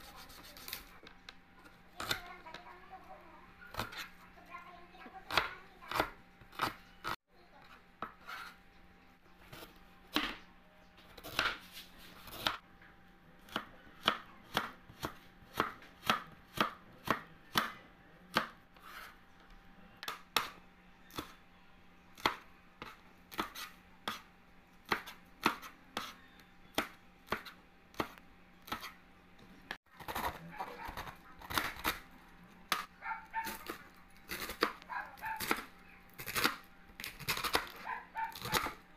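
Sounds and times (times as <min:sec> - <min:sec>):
knife chopping on cutting board: 0:11.2 - 0:12.6, 0:13.5 - 0:19.2, 0:22.2 - 0:24.3, 0:24.9 - 0:29.0.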